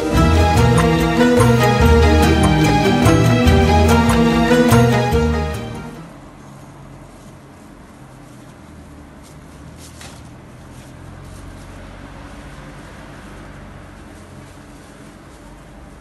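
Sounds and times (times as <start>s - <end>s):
street background hum: 0.0s - 16.0s
rustling of leafy vegetables: 6.2s - 16.0s.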